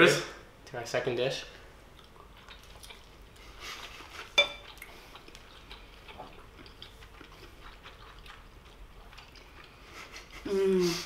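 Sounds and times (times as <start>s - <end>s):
forks clinking on ceramic bowls: 4.4s - 4.6s.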